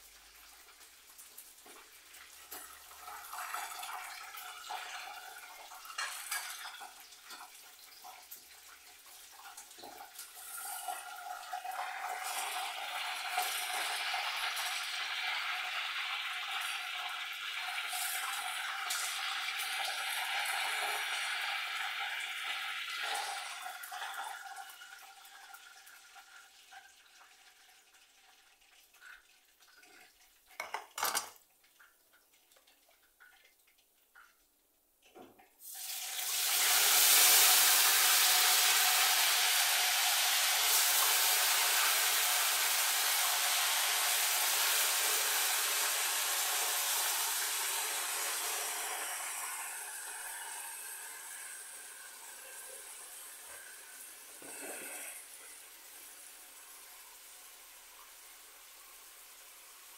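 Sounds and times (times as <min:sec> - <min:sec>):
pots and cutlery clattering: 0:05.8 - 0:07.6, 0:30.6 - 0:31.4.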